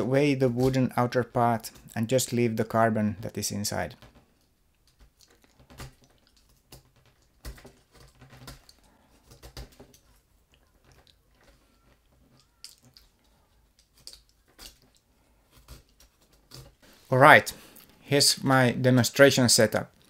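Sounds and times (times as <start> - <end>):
knife shaving pencil wood: 4.8 - 17.0.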